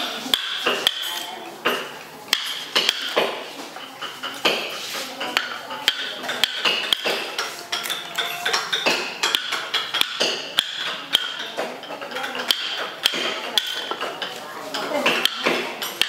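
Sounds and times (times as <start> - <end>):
mallet striking chisel into wood: 0.3 - 3.4, 5.4 - 7.4, 8.5 - 11.5, 12.4 - 14.0, 15.1 - 15.6.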